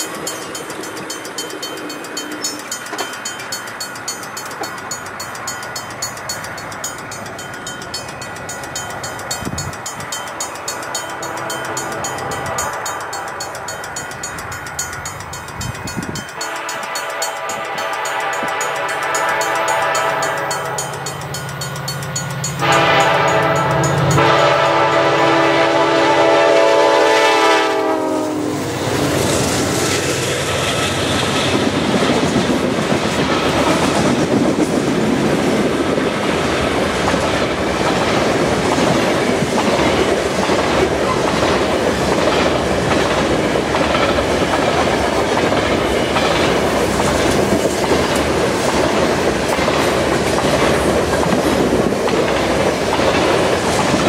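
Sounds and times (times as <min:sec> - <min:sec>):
train horn blasts: 0:16.3 - 0:20.9, 0:22.6 - 0:28.8.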